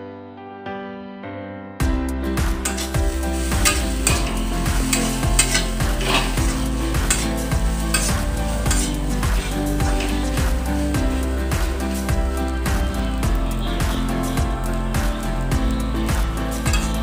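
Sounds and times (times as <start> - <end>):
frying sizzle: 2.4 - 17.0
metal spatula scraping metal pan: 2.6 - 12.1, 16.7 - 17.0.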